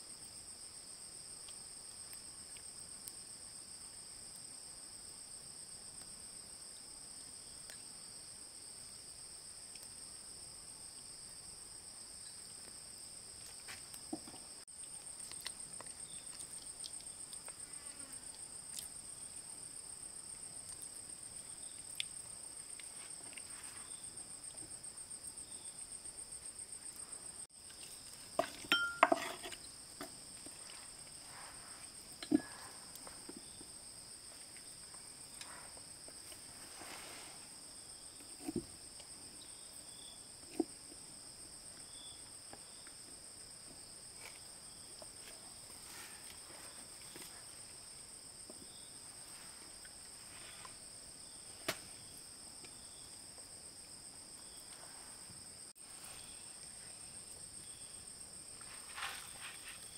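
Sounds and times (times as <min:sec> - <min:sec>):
insects chirring: 0:06.3 - 0:59.9
knocks and clinks of objects: 0:28.3 - 0:30.1.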